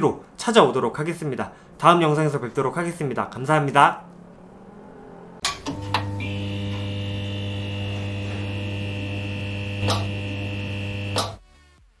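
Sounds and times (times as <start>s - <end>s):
electrical crackling click: 5.4s - 11.4s
neon sign buzzing: 5.4s - 11.4s.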